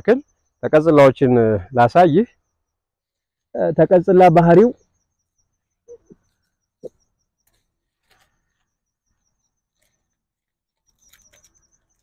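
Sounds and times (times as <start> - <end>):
high chirping: 0.0 - 12.0
leaves and twigs rustling: 7.4 - 8.8, 9.7 - 12.0.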